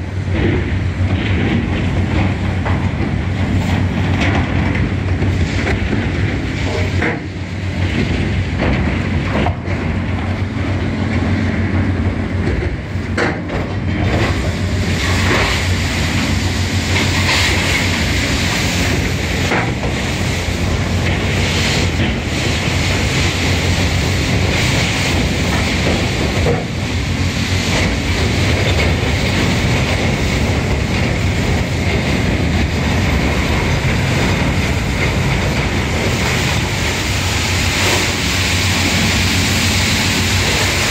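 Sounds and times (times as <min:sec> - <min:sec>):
rotary brush scrubbing steel: 0:14.3 - 0:40.9
power unit humming: 0:14.4 - 0:40.9.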